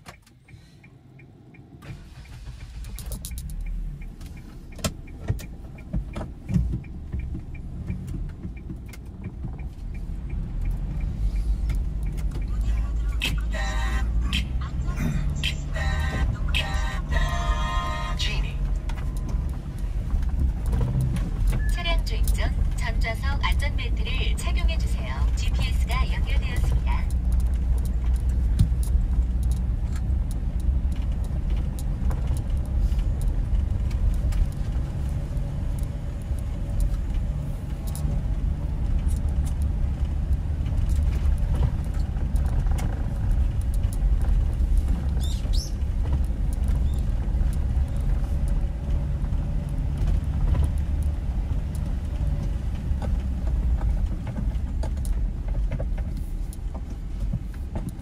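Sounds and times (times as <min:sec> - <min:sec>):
car engine and road noise: 0:00.0 - 0:58.0
small clicks and rattles: 0:26.1 - 0:58.0.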